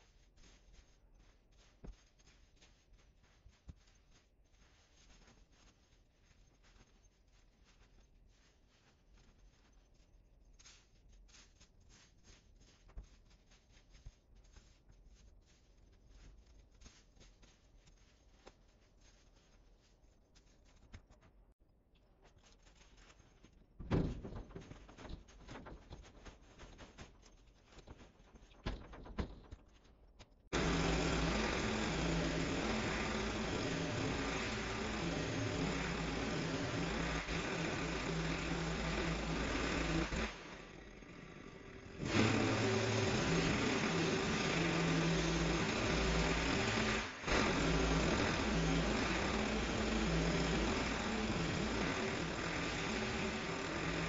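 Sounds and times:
hedge clippings rustling: 22.4 - 54.0
hedge trimmer running: 30.5 - 54.0.

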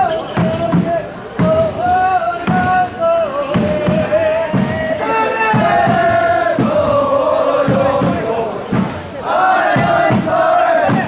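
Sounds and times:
high flute melody: 0.0 - 7.0
steady drum beats: 0.0 - 11.0.

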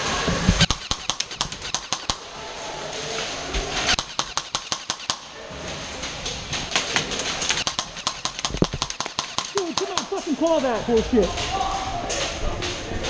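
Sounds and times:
pellets hitting wood and metal: 0.6 - 2.3, 3.8 - 5.5, 6.4 - 11.6.

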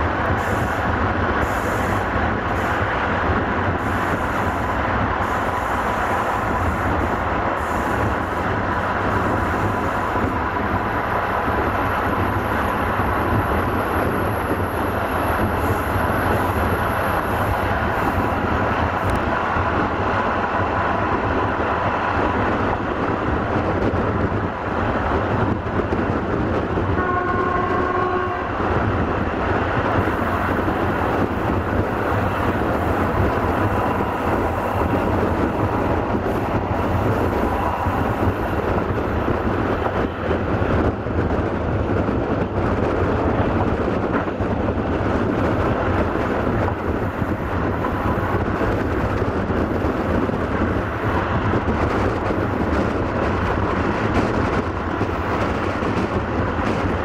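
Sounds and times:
train wheels rumbling on rail: 0.0 - 57.0
wind: 0.0 - 57.0
locomotive horn: 27.0 - 28.6.

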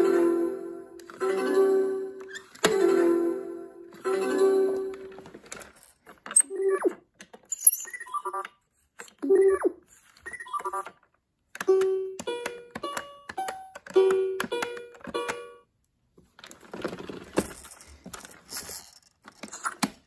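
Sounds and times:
toy speaker sound effects: 9.2 - 10.9.

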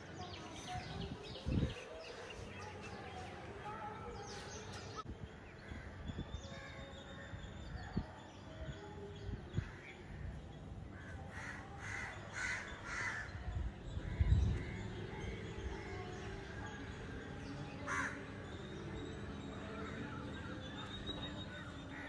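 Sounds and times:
birds calling faintly: 0.0 - 22.0
crows cawing: 11.3 - 13.4, 17.8 - 18.2.

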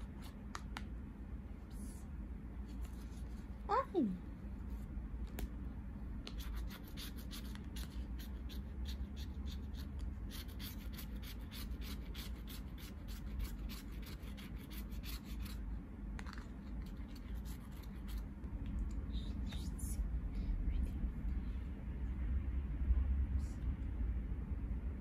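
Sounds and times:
low steady rumble: 0.0 - 25.0
scratching and rubbing: 16.2 - 18.3.

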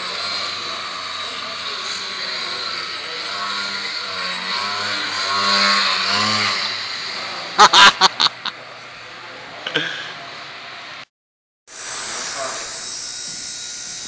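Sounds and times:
model plane motor buzzing: 0.0 - 7.5.

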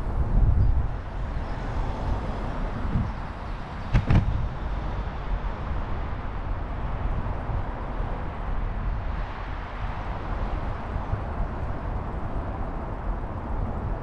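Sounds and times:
wind rumbling on microphone: 0.0 - 14.0
sharp knocks: 3.9 - 4.4.

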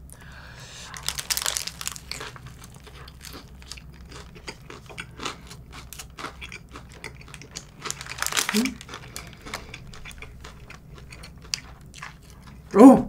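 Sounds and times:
crunchy bite into burger: 0.9 - 10.4
chewing with crisp crackles: 0.9 - 12.8.

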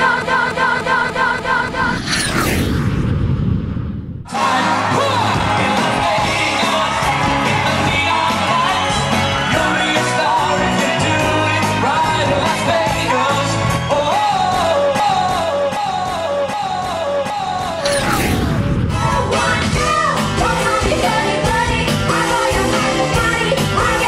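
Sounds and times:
upbeat pop backing music: 4.3 - 18.3, 18.9 - 24.0.

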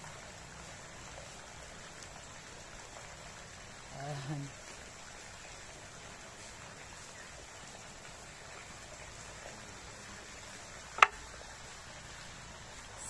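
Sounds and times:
water running through pool gutter: 0.0 - 13.0.

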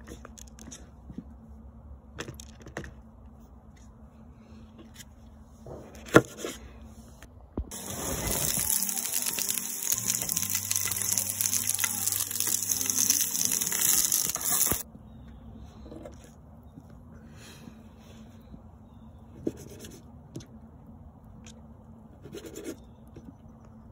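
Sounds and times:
vegetables sizzling in a skillet: 7.7 - 14.8.

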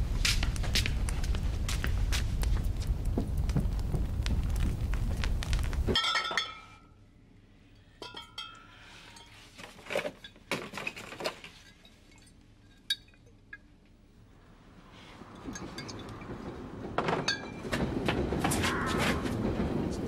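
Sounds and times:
low rising rumble: 0.0 - 6.0
glass bottles clinking: 5.9 - 6.8, 8.0 - 13.7, 15.4 - 16.4.

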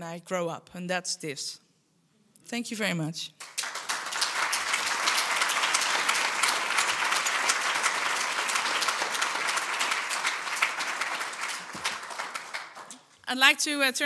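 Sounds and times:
audience applauding: 3.4 - 13.1.

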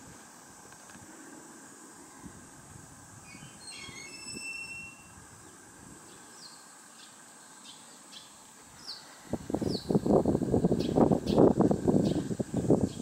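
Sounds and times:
high thin squealing tones: 3.2 - 5.2
bird chirping: 3.2 - 10.0, 10.8 - 12.3.

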